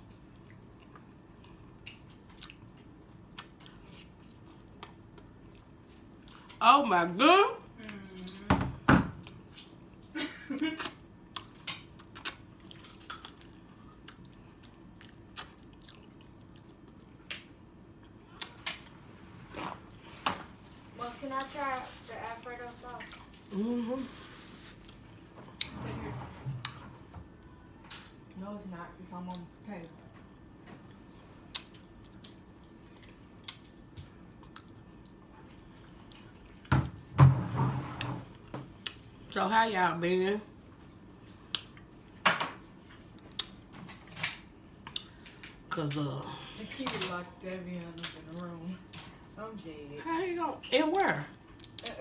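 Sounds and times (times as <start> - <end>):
quiet chewing: 0.0 - 6.6, 10.8 - 17.4, 22.7 - 25.7, 29.2 - 36.7, 42.8 - 43.7, 44.8 - 47.1.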